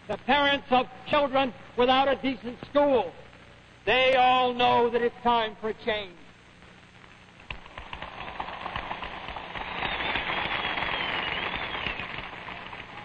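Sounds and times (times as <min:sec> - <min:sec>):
crowd applauding: 0:07.7 - 0:13.0
faint high whistle: 0:09.6 - 0:12.6.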